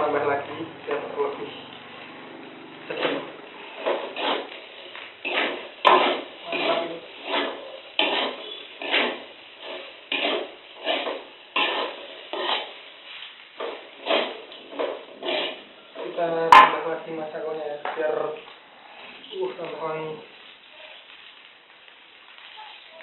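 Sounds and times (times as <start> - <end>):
metal spatula scraping wok: 2.9 - 16.8.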